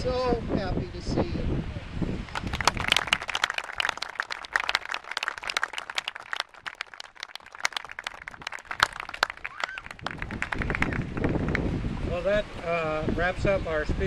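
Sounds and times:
audience applauding: 2.3s - 11.7s.

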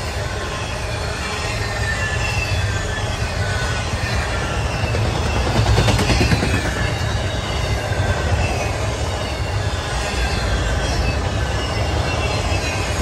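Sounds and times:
high wheel squeal: 0.0s - 13.0s
train wheels rumbling on rails: 0.0s - 13.0s.

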